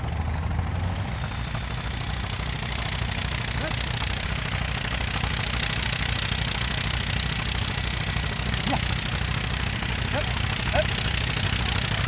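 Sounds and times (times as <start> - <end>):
tractor engine idling: 0.0 - 12.0.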